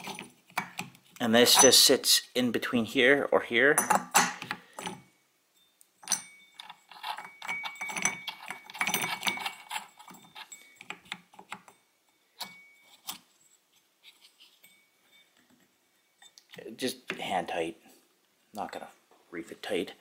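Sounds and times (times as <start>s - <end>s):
metallic clicks and scrapes: 6.0s - 11.8s.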